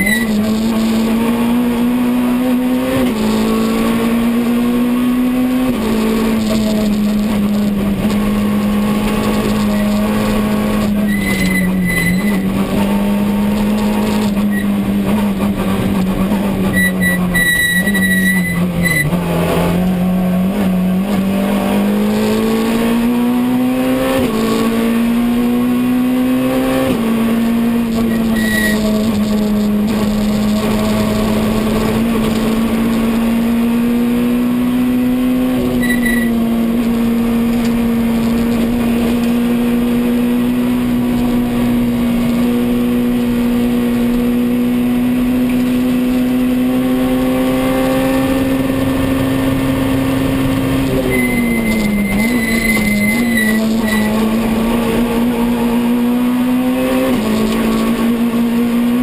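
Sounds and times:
brief high squeal: 0:00.0 - 0:00.3, 0:11.0 - 0:12.4, 0:16.7 - 0:19.1, 0:28.1 - 0:28.9, 0:35.8 - 0:36.4, 0:51.0 - 0:54.1
rally car engine running hard: 0:00.0 - 0:59.0.

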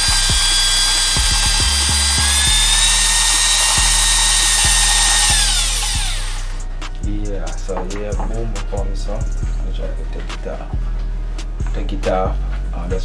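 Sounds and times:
cordless drill whirring: 0:00.0 - 0:06.6.

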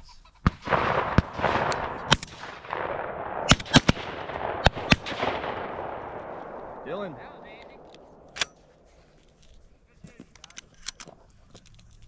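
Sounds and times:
shotgun shots: 0:00.4 - 0:08.8.

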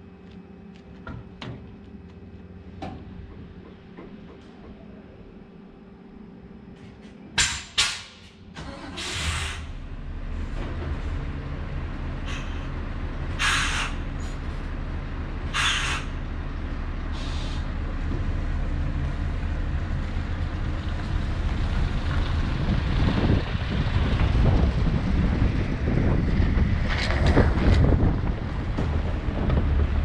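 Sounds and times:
diesel truck engine running: 0:08.3 - 0:30.0
air brake hisses: 0:08.8 - 0:09.7, 0:13.4 - 0:14.3, 0:15.6 - 0:16.1, 0:17.1 - 0:17.7.

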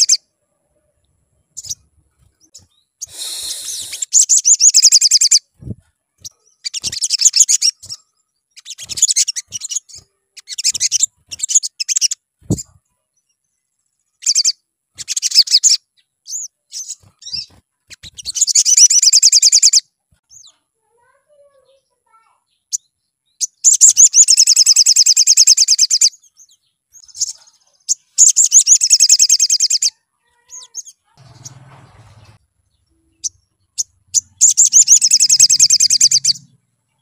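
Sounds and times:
bird twittering trills: 0:00.0 - 0:00.3, 0:01.3 - 0:20.6, 0:22.5 - 0:37.0.

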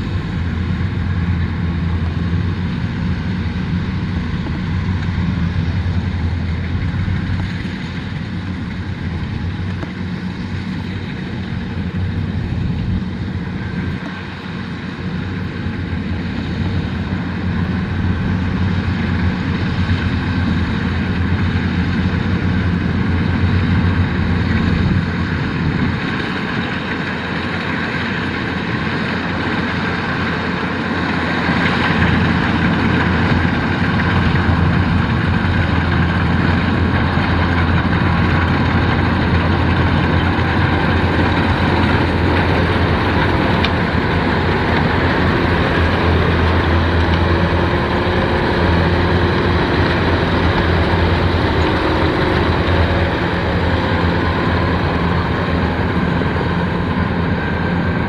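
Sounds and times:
diesel engine droning: 0:00.0 - 0:58.0.

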